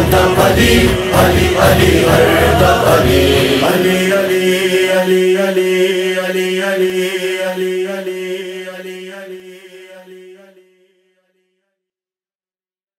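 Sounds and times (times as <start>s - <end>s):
low drone: 0.0s - 9.3s
rhythmic chanting: 0.0s - 10.8s.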